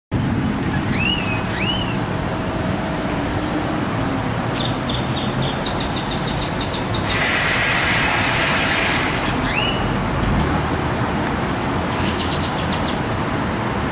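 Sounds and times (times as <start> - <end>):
traffic rumble and hiss: 0.1 - 13.9
loud steady hiss: 7.0 - 9.4.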